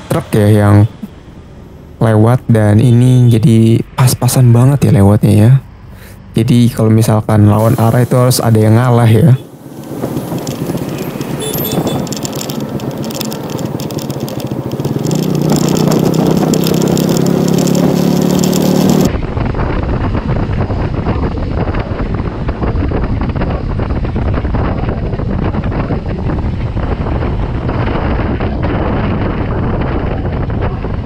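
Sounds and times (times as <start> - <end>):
vehicle engine rising: 7.3 - 30.6
wind buffeting microphone: 7.6 - 31.0.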